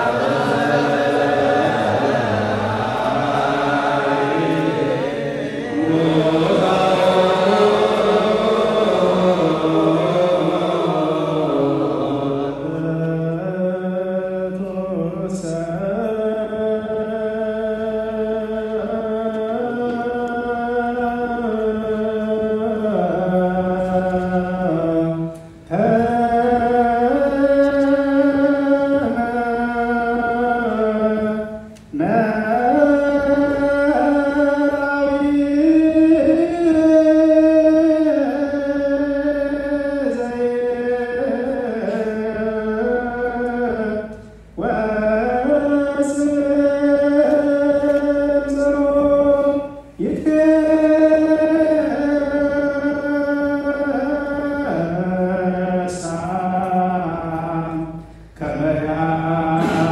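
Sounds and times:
group chanting: 0.0 - 16.3, 58.4 - 59.9.

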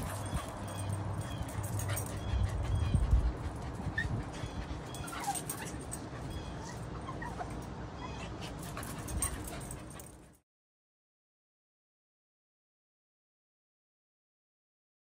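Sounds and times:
puppy whimpering and yipping: 0.0 - 10.0.

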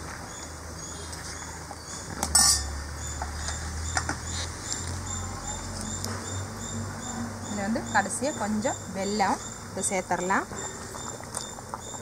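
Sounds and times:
steel kitchenware clinking: 2.3 - 2.7.

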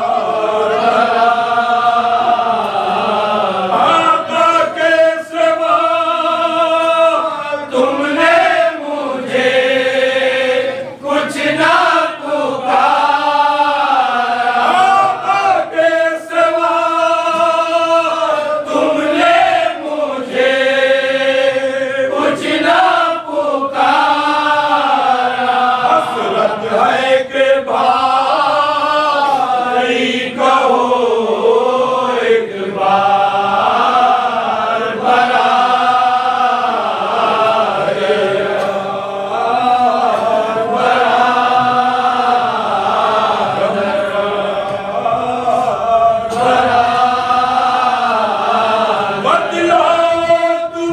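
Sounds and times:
men chanting in unison: 0.0 - 50.9.

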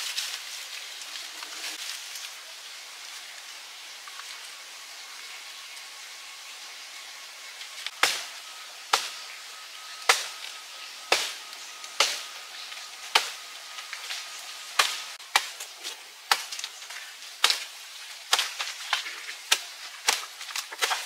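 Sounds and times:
blade chopping strokes: 7.9 - 9.4, 10.0 - 21.0.

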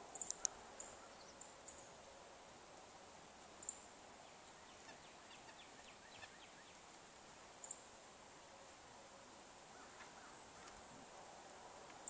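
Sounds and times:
small songbirds calling: 0.0 - 2.0, 3.6 - 6.9, 7.6 - 7.9.

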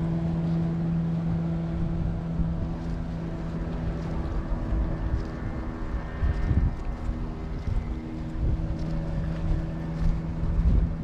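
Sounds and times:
boat engine droning: 0.0 - 11.0
wind rumbling on microphone: 0.0 - 11.0.

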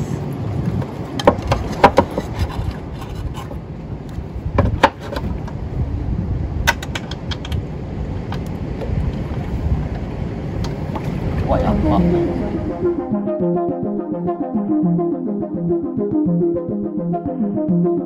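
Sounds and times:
wind on microphone: 0.0 - 14.2
boat engine rumble: 0.0 - 17.6.

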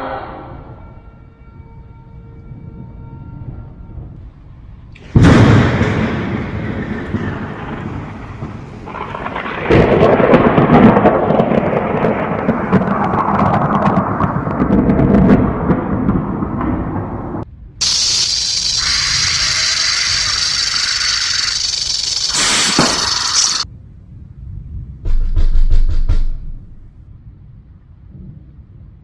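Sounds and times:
rumble of thunder: 2.5 - 29.0
thunder crack: 5.0 - 23.6.

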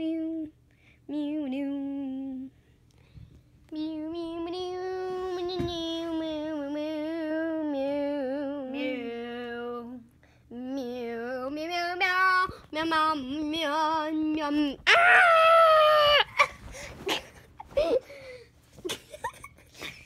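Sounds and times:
child singing wordless tune: 3.7 - 14.9.

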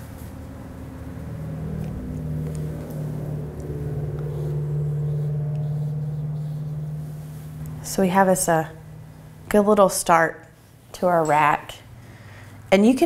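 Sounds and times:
running motor hum: 0.0 - 12.7.

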